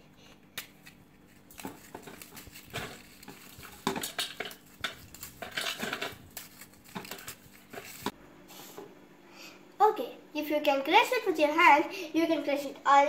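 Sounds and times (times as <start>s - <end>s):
biscuits snapping: 0.5s - 8.1s
crumbs clattering in metal bowl: 1.5s - 8.1s.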